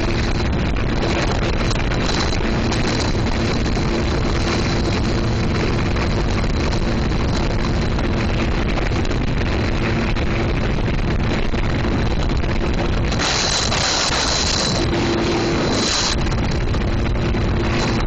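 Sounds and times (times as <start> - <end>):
personal watercraft engine drone: 0.0 - 18.0
wind buffeting microphone: 0.0 - 18.0
loud rushing hiss: 13.1 - 16.2.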